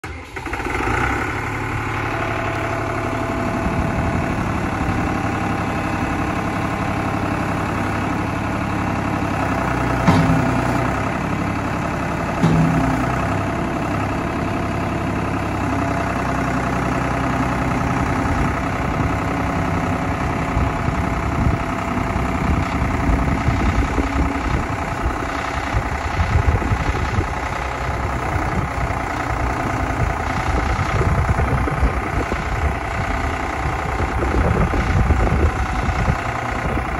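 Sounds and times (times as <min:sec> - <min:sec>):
tractor diesel engine idling: 0:00.0 - 0:36.9
loader bucket clunks: 0:02.8 - 0:15.7.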